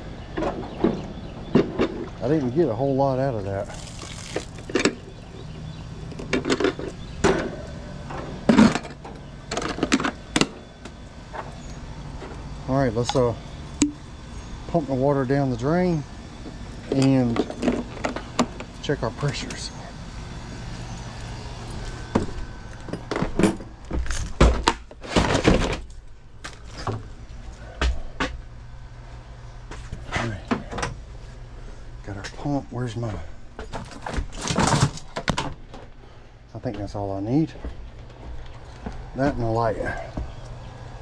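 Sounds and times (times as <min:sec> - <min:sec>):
steady low hum: 0:00.0 - 0:41.0
knocks and clatter on metal shelving: 0:23.0 - 0:25.9, 0:33.6 - 0:35.9.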